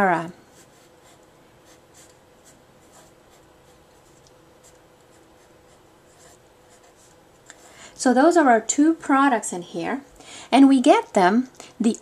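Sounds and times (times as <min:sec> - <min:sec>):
marker pen scratching: 0:00.5 - 0:03.8, 0:04.6 - 0:07.2.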